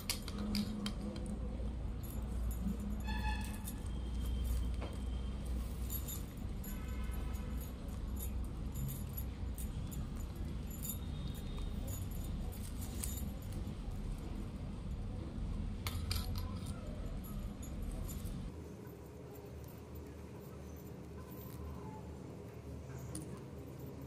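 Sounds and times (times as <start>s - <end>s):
metal bangles jingling: 0.0s - 15.0s, 15.8s - 18.5s.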